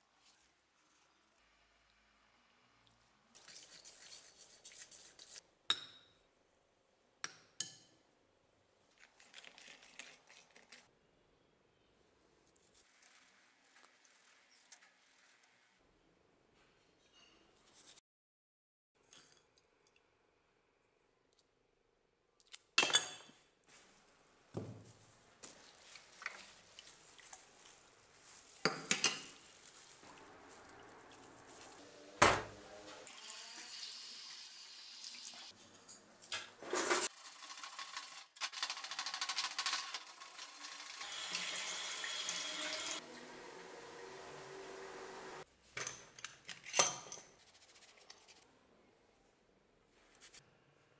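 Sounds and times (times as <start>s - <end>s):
tap water running in a sink: 33.1s - 35.5s, 37.1s - 45.4s
metal parts clinking in a pot: 37.2s - 41.7s.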